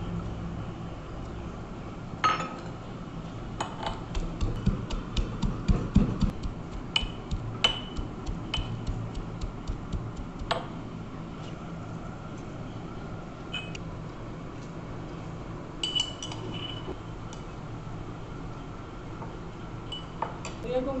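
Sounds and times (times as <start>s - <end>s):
metal pestle pounding in mortar: 3.9s - 10.6s.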